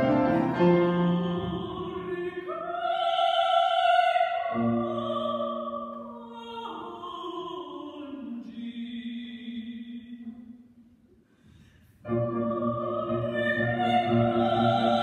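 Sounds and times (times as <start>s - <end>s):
grand piano accompaniment: 0.0s - 2.4s, 12.0s - 15.0s
operatic soprano singing: 0.0s - 10.4s, 12.1s - 15.0s.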